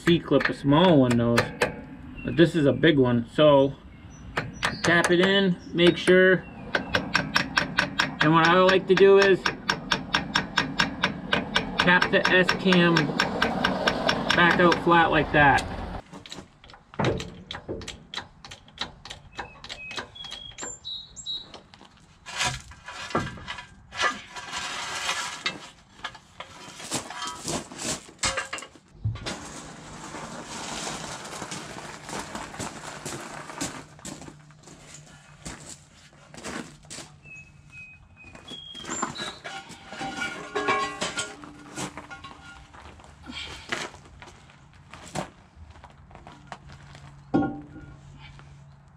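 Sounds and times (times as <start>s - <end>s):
hand tools tapping metal: 0.0s - 1.9s, 4.3s - 20.8s, 38.8s - 42.9s.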